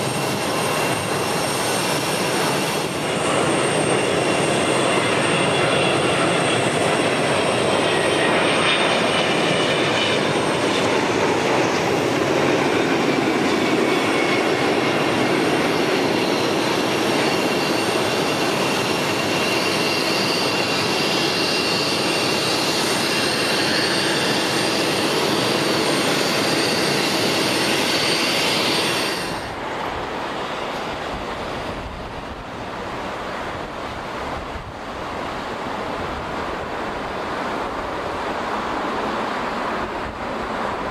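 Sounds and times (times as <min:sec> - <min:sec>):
high-pitched engine whines: 0:00.0 - 0:33.8
jet engines roaring: 0:00.0 - 0:40.9
wind rumbling on microphone: 0:29.3 - 0:40.9.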